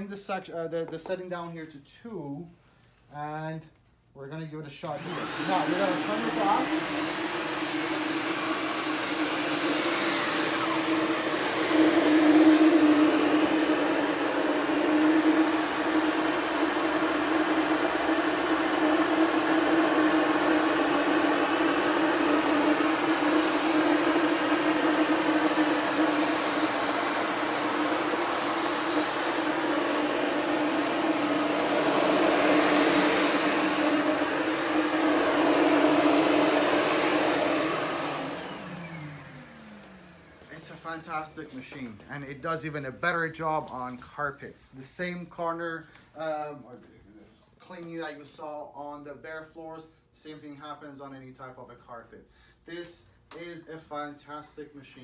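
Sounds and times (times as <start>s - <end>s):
vacuum cleaner running: 4.8s - 42.4s
vacuum motor winding down: 4.9s - 41.1s.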